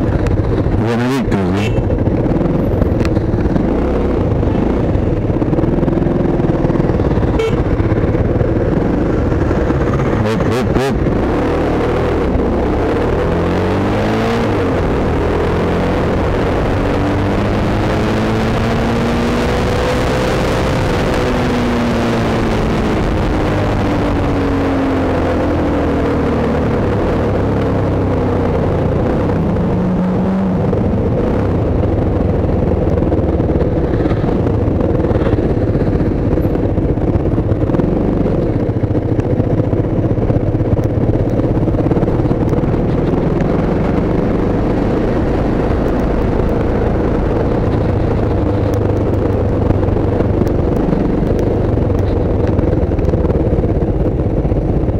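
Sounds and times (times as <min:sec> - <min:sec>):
motorcycle engine: 0:00.0 - 0:54.9
wind and road noise: 0:00.0 - 0:54.9.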